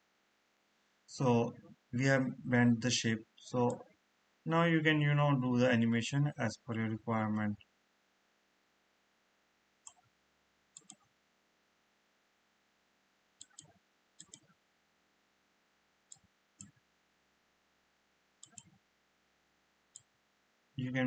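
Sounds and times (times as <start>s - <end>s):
faint room noise: 0.0s - 21.0s
computer mouse clicking: 9.8s - 10.1s, 10.8s - 11.1s, 13.4s - 14.6s, 16.1s - 16.8s, 18.4s - 18.8s.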